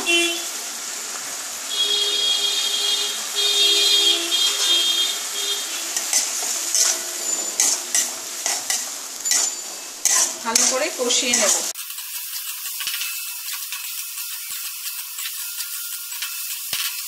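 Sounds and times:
tomato paste sizzling in a pan: 0.1 - 17.0
metal spatula scraping a pan: 4.6 - 17.0.

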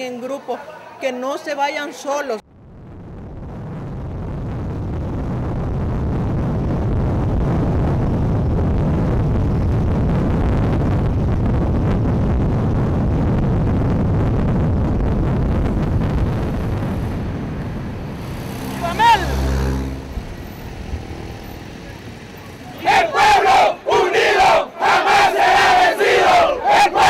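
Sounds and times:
vehicle road and wind noise: 0.0 - 27.0.

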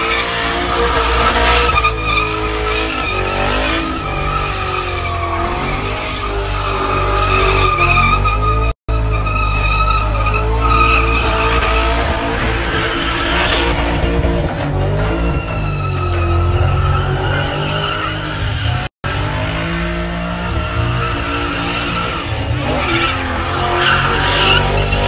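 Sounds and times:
car engine at high revs: 0.0 - 25.0.

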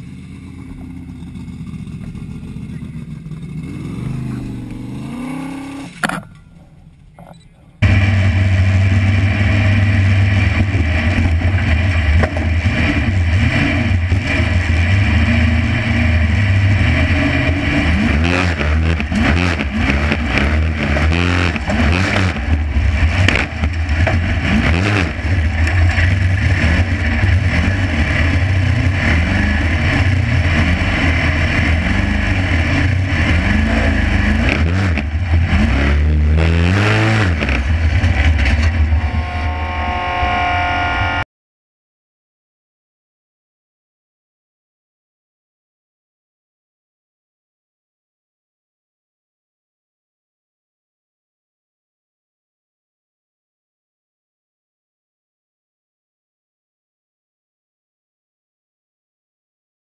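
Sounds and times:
race car engine revving: 0.0 - 41.2.

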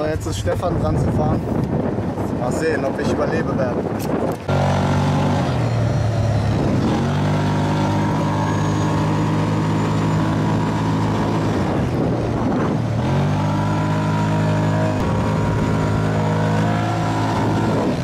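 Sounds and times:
dune buggy engine running hard: 0.0 - 18.0.

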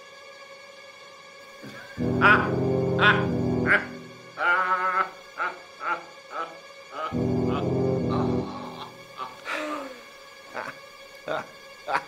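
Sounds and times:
low sustained chord: 1.6 - 4.5, 7.1 - 9.5
synthesizer drone: 1.6 - 9.5
man laughing: 1.7 - 12.0.

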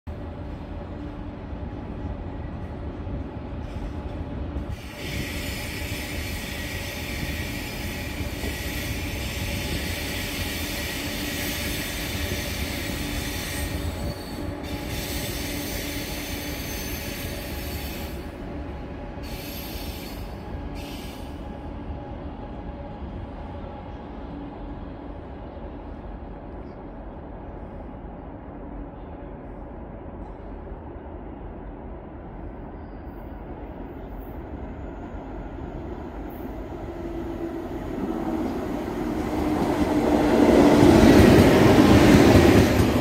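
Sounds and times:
train rumble and hum: 0.0 - 43.0
wheels hissing on rail braking: 4.7 - 18.3, 19.2 - 21.6.

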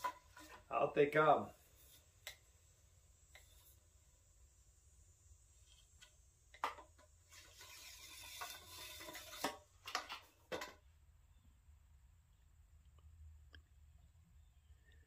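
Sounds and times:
scraping hiss: 0.0 - 10.7.

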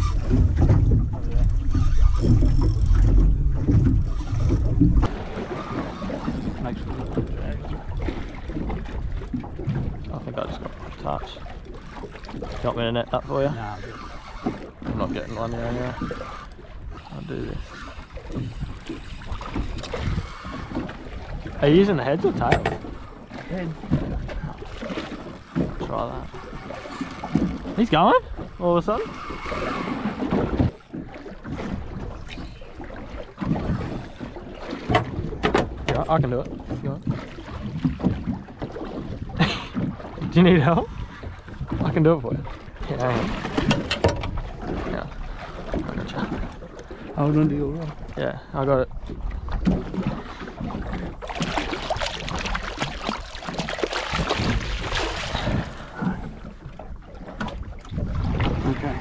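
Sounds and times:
fish splashing in water: 0.0 - 7.0, 49.6 - 56.2
water slapping against hull: 0.0 - 59.0
wind buffeting microphone: 0.0 - 59.0.

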